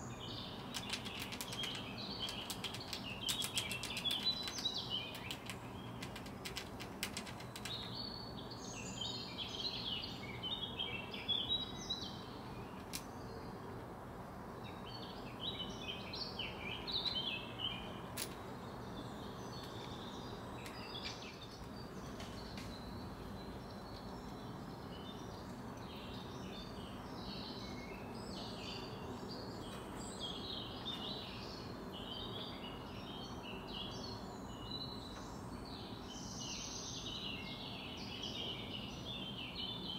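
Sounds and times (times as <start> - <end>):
songbirds chirping and singing: 0.0 - 14.0, 14.6 - 39.9
low background hum: 0.0 - 37.2
sharp clicks: 0.6 - 8.0.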